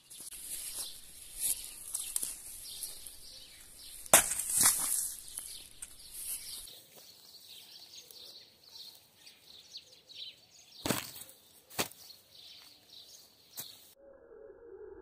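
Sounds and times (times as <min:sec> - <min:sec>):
birds chirping: 0:00.0 - 0:14.0
hammer smashing watermelon: 0:04.1 - 0:04.9.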